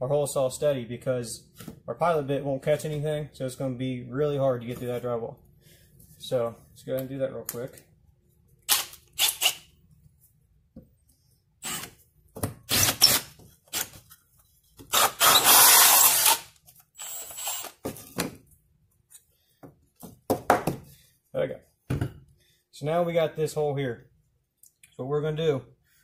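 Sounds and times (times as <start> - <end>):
drill cutting through drywall: 8.7 - 9.7, 11.6 - 12.0, 12.7 - 13.9, 14.9 - 17.8.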